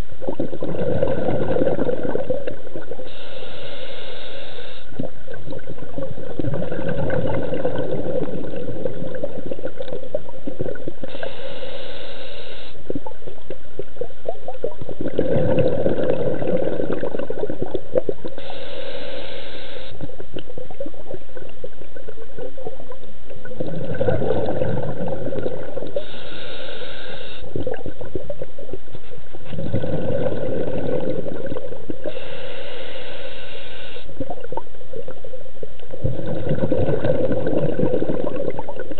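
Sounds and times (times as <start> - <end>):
bubbling exhale underwater: 0.0 - 3.4, 4.8 - 11.6, 12.8 - 32.6, 33.9 - 38.9
diver inhaling through regulator: 3.0 - 5.0, 11.0 - 12.9, 18.3 - 20.2, 23.6 - 27.8, 29.5 - 34.3.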